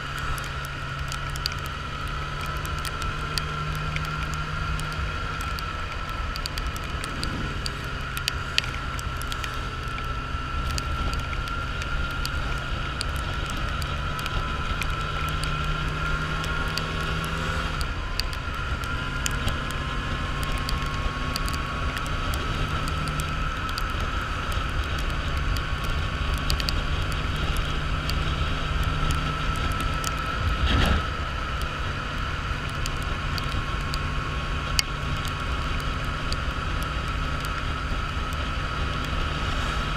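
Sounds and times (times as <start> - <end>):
motorcycle engine cruising: 0.0 - 39.9
faint ticks: 0.1 - 39.9
wind rush: 6.4 - 9.7
tyre hiss on wet road: 6.9 - 11.0.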